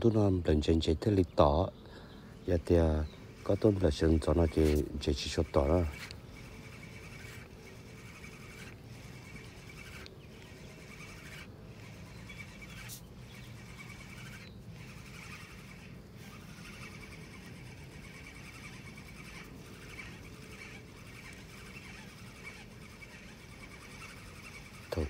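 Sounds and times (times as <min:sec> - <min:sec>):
faint birds chirping: 0:00.0 - 0:25.0.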